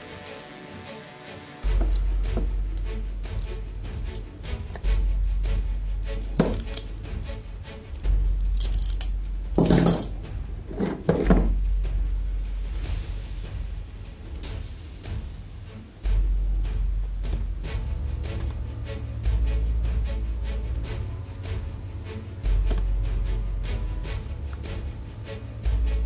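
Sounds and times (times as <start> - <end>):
metal handcuffs clinking: 0.0 - 4.9, 5.5 - 10.1
background music with deep bass: 0.0 - 26.0.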